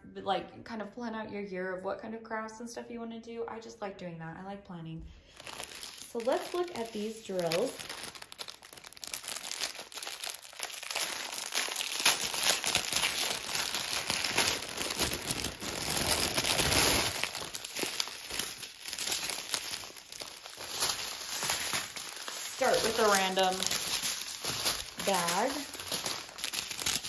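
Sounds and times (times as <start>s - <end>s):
plastic bags crinkling: 5.2s - 27.0s.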